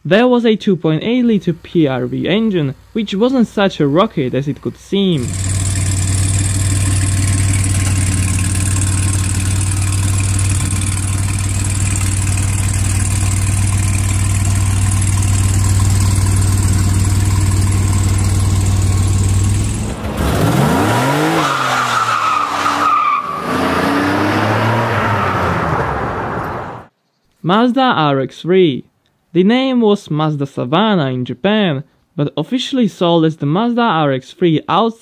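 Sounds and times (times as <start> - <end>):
car engine idling: 1.2 - 21.8
engine revving hard: 5.1 - 26.9
tyre squeal: 19.7 - 23.8.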